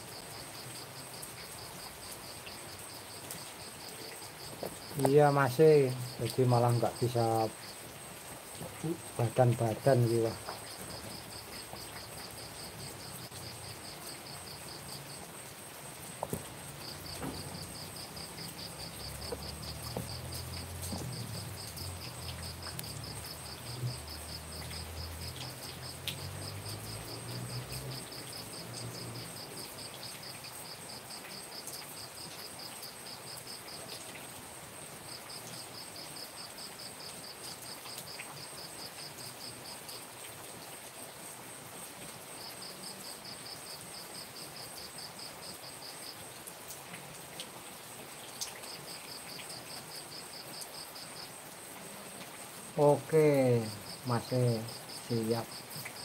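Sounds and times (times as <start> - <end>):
night insects buzzing and trilling: 0.0 - 56.0
steady rain: 0.0 - 56.0
small knocks: 16.2 - 16.5, 17.1 - 17.6, 19.2 - 21.3.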